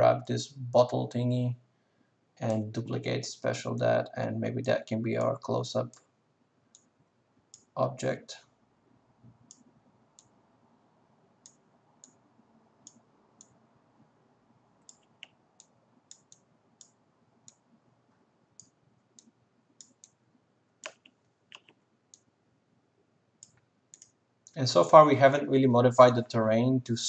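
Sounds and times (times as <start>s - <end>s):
computer mouse clicks: 14.8s - 17.6s, 18.6s - 20.2s, 20.8s - 22.3s, 23.4s - 24.2s.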